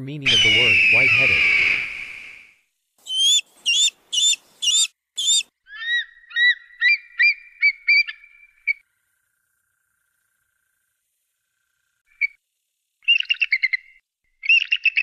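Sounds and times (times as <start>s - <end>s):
eagle calling: 0.2s - 8.8s.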